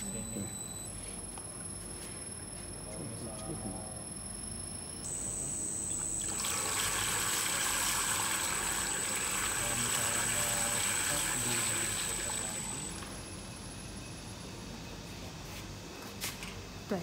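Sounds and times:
mixer churning liquid: 6.0s - 13.1s.

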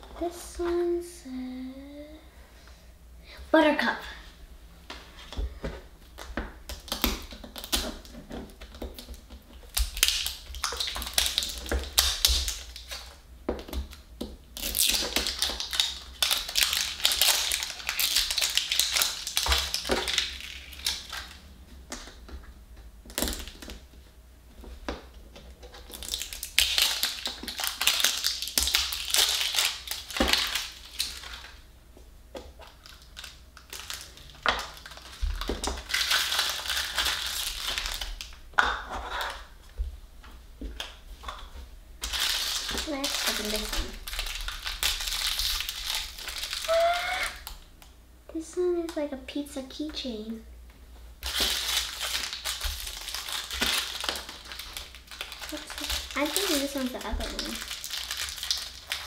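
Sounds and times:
wrapper crinkling: 6.8s - 13.2s, 14.6s - 21.4s, 25.6s - 31.6s, 32.6s - 38.4s, 42.0s - 47.6s, 51.2s - 59.0s.

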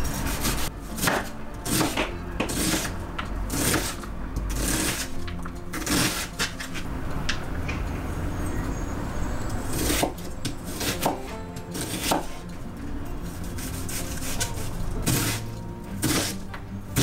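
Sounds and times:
knife slicing onion: 0.0s - 6.9s, 9.7s - 12.5s, 13.3s - 17.0s.

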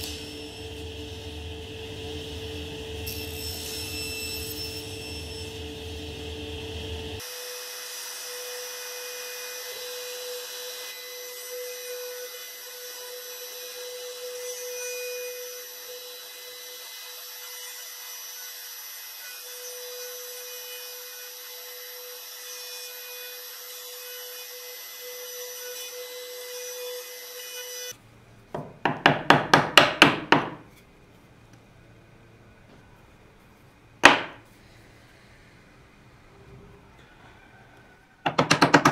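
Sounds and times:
power tool cutting wood: 0.0s - 28.0s
chisel strikes chopping wood: 34.0s - 34.4s, 38.3s - 38.9s.

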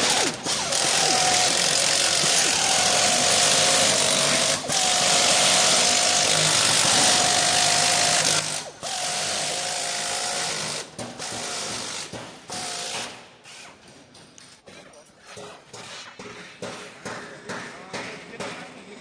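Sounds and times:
power tool whining: 0.0s - 12.0s.

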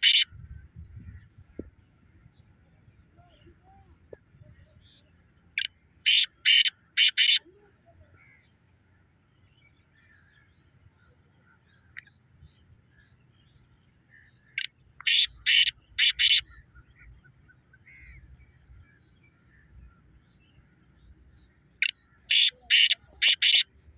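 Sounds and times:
partridge calling harsh high notes: 22.3s - 23.7s.

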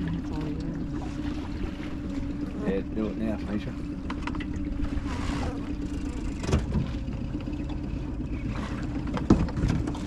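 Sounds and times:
outboard motor idling: 0.0s - 10.0s
boat hull knocking on pontoon: 9.0s - 10.0s.

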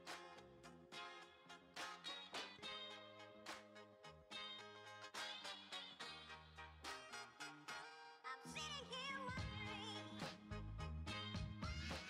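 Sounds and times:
background music with steady beat: 9.3s - 12.0s.

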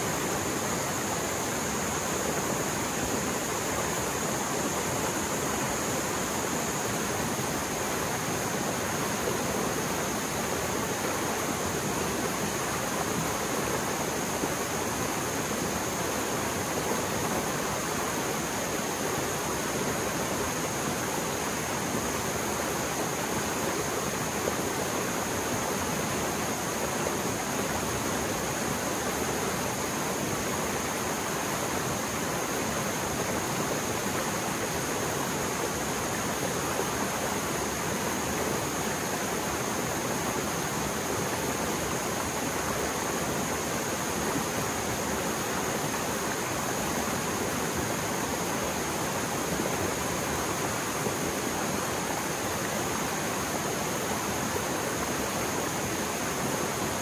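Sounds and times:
fast-flowing stream roaring: 0.0s - 57.0s.

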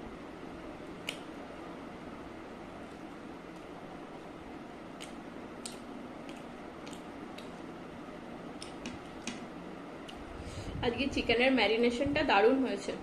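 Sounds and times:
low background hiss: 0.0s - 13.0s
wet eating squishes: 4.9s - 7.7s.

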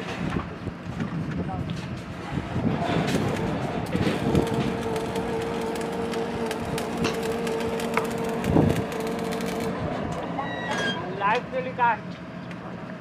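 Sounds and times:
constant whine: 0.0s - 13.0s
drilling rig running: 2.2s - 10.4s.

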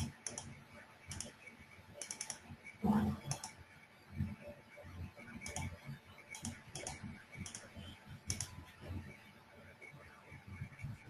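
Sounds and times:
computer keyboard typing: 0.0s - 1.4s, 2.0s - 2.4s, 3.2s - 3.6s, 5.4s - 5.7s, 6.3s - 8.5s.

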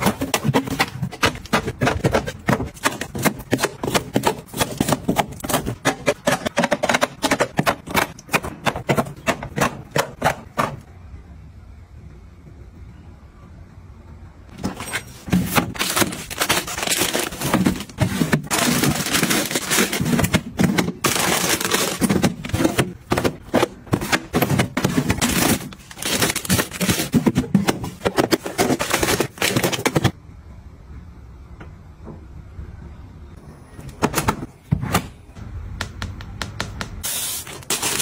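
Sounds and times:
cardboard boxes rustling and scraping: 0.0s - 10.8s, 14.6s - 30.1s.

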